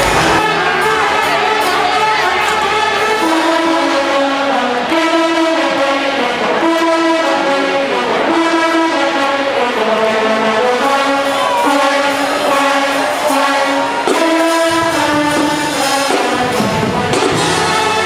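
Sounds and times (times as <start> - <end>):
brass band playing long notes: 0.0 - 18.0.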